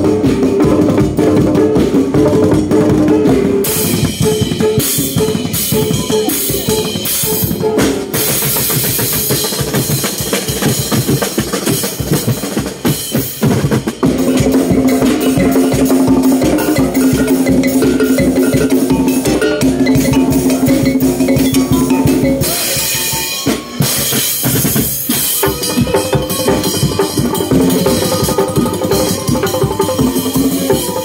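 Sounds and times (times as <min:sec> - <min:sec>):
fast drumming: 0:00.0 - 0:31.0
bossed gongs beaten: 0:25.4 - 0:31.0.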